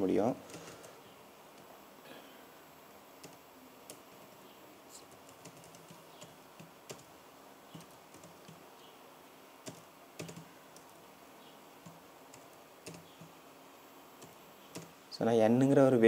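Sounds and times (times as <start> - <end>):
keyboard typing: 0.4 - 1.0, 3.2 - 4.4, 5.0 - 8.6, 9.6 - 11.0, 11.8 - 13.4, 14.2 - 15.0.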